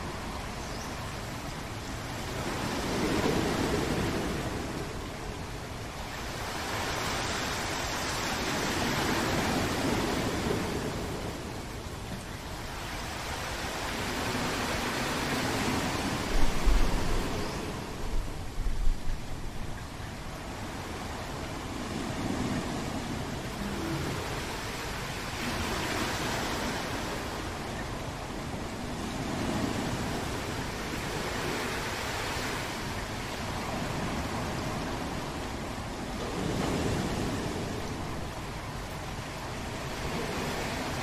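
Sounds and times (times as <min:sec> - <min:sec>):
heavy rain: 0:22.3 - 0:28.9.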